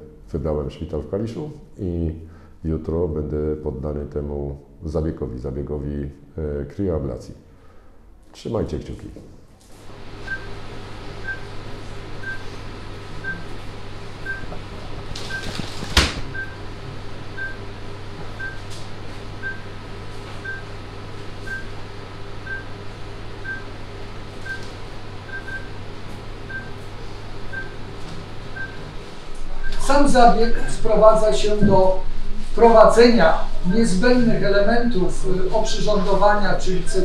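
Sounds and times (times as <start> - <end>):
low equipment hum: 0.0 - 37.0
patient monitor beeping: 10.0 - 13.6, 14.2 - 14.6, 15.2 - 16.7, 17.4 - 17.7, 18.3 - 18.7, 19.4 - 19.7, 20.4 - 20.8, 21.4 - 21.8, 22.4 - 22.8, 23.4 - 23.8, 24.4 - 25.8, 26.5 - 26.9, 27.5 - 27.9, 28.5 - 31.8.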